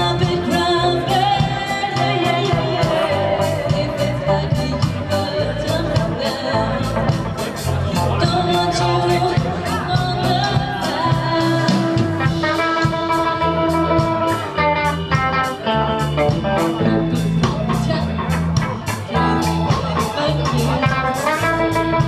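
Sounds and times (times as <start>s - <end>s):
woman singing into a microphone: 0.0s - 7.4s, 8.0s - 14.1s
bass guitar: 0.0s - 22.0s
drum and cymbal hits: 0.0s - 22.0s
electric guitar: 0.0s - 22.0s.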